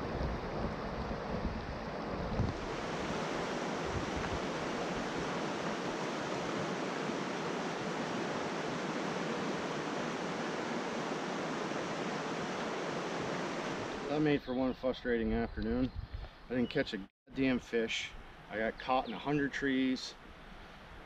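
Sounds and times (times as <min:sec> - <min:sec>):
river rushing over rocks: 0:02.6 - 0:14.1.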